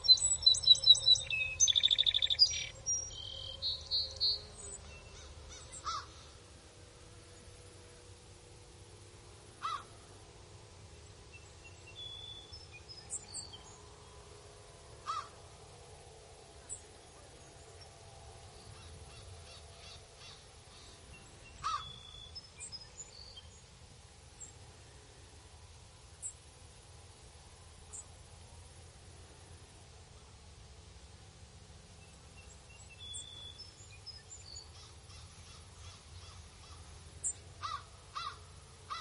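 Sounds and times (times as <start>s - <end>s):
harsh bird calls: 0.0s - 6.4s, 18.7s - 23.2s, 34.6s - 39.0s
faint steady hum: 0.0s - 39.0s.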